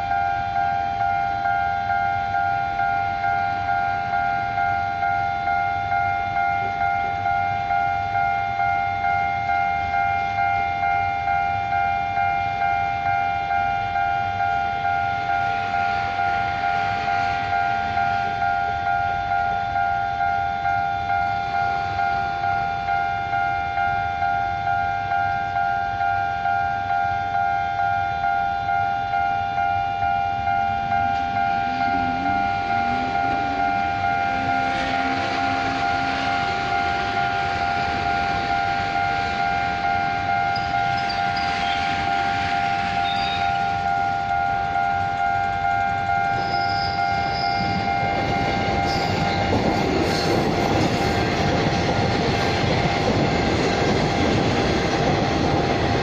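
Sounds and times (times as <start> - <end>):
level crossing bell ringing: 28.3 - 50.5.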